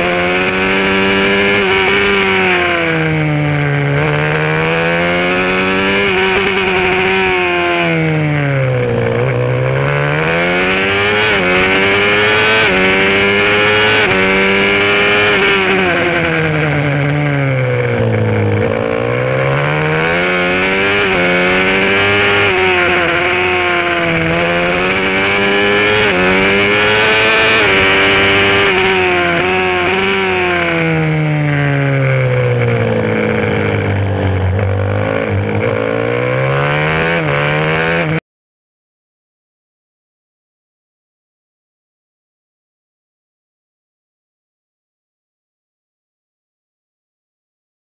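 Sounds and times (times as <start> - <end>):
racing motorcycle engine: 0.0 - 38.2.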